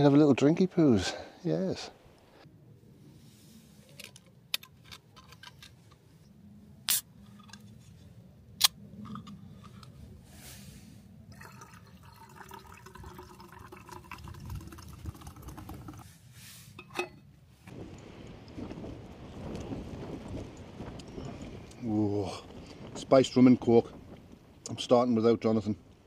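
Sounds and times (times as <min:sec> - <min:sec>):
bottle cap and can opening: 0:06.9 - 0:07.6
liquid pouring into metal mug: 0:11.3 - 0:16.0.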